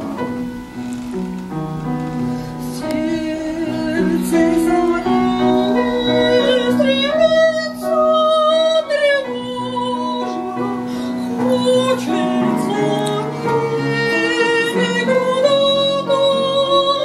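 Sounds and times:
piano accompaniment: 0:00.0 - 0:17.0
woman singing operatically: 0:02.6 - 0:17.0.

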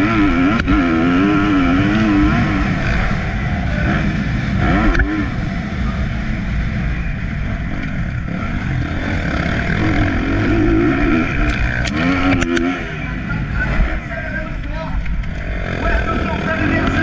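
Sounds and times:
motocross bike engine revving: 0:00.0 - 0:17.0
sharp clicks: 0:11.4 - 0:12.7.

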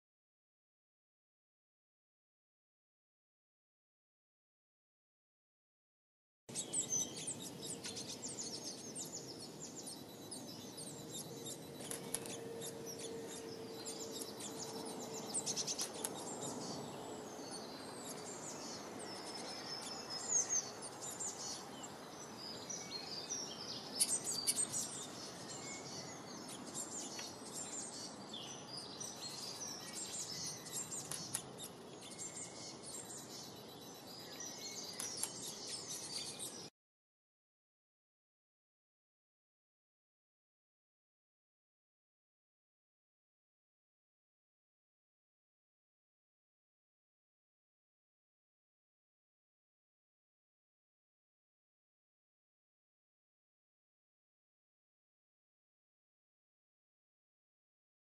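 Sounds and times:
small songbirds chirping: 0:06.5 - 0:36.7.

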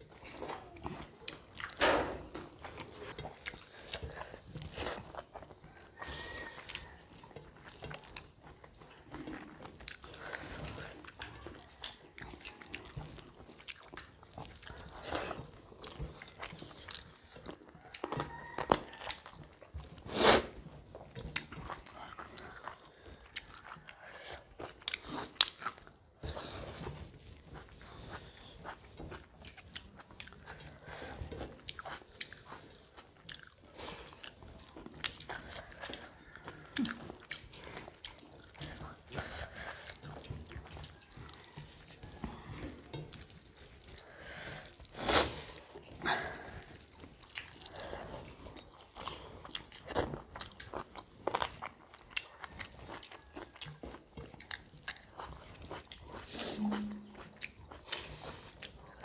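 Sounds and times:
people chewing: 0:00.0 - 0:59.0.

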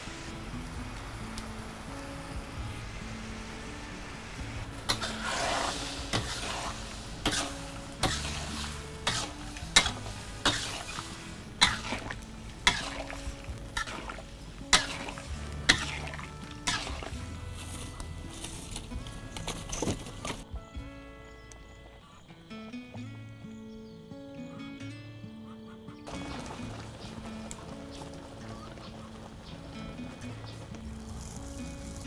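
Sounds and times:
soft background music: 0:00.0 - 0:32.0
metal spatula clanking on wok: 0:07.2 - 0:08.4, 0:09.0 - 0:11.0.

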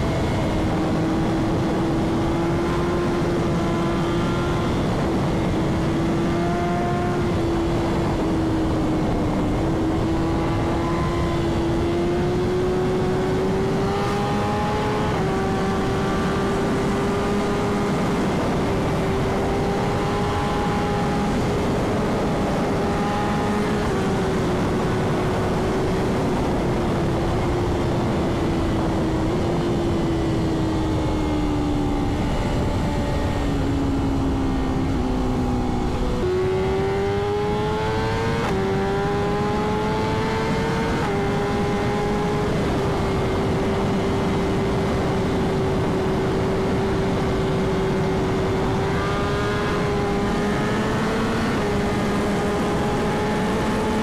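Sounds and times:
motorcycle engine running hard: 0:00.0 - 0:54.0
wind noise: 0:00.0 - 0:54.0.

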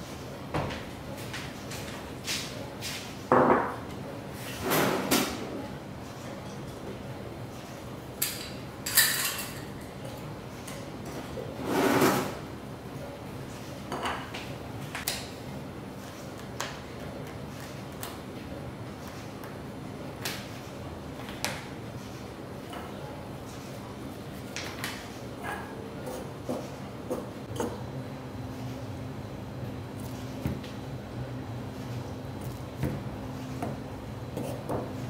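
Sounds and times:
kitchen knocks and clatters: 0:03.3 - 0:03.9, 0:08.2 - 0:10.0.

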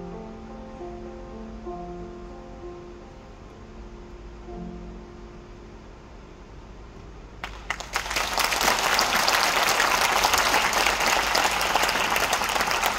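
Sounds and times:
audience applauding: 0:07.4 - 0:12.9.

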